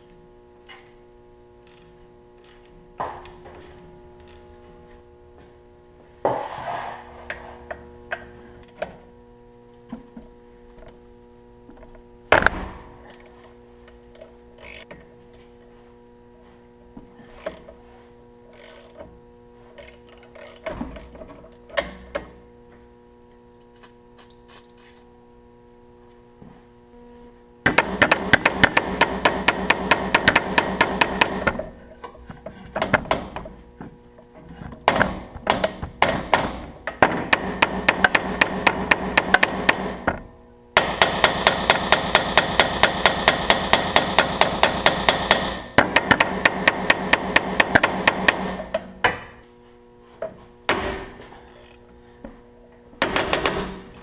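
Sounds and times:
rapid hammering on metal: 0:27.7 - 0:31.6, 0:34.8 - 0:40.0, 0:40.8 - 0:48.8.

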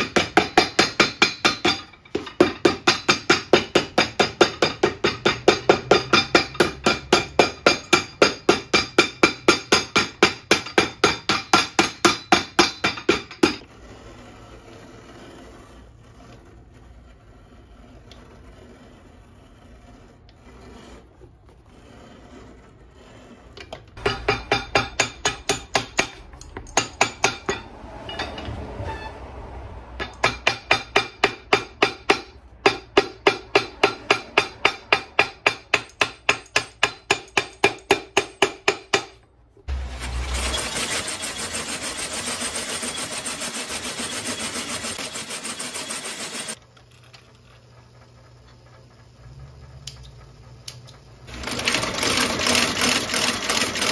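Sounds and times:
hammer pounding leather: 0:00.0 - 0:13.6, 0:24.0 - 0:27.6, 0:30.0 - 0:39.2
shop machine running: 0:00.0 - 0:53.9.

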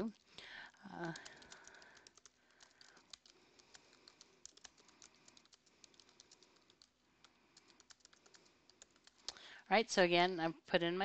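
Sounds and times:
typing on computer keyboard: 0:00.8 - 0:09.4.

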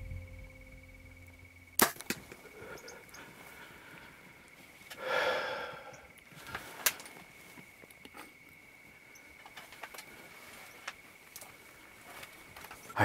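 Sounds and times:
person exhaling heavily: 0:05.0 - 0:06.1.

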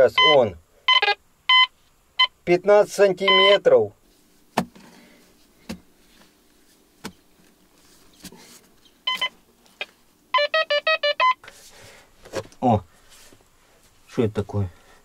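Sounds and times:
metal detector beeping: 0:00.1 - 0:02.4, 0:03.3 - 0:03.6, 0:09.0 - 0:11.5.

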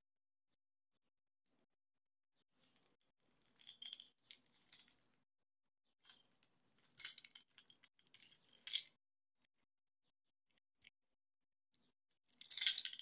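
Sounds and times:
keys jangling against metal tool: 0:03.6 - 0:05.0, 0:06.1 - 0:08.9, 0:12.4 - 0:13.0.

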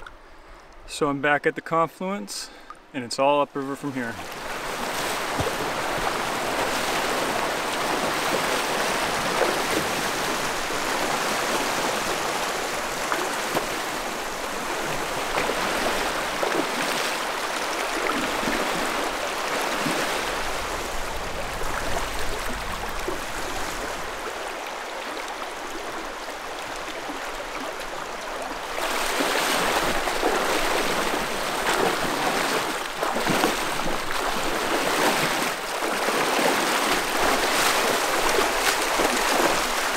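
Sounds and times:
legs wading through water: 0:04.1 - 0:39.9
river rapids rushing over rocks: 0:28.6 - 0:39.9.

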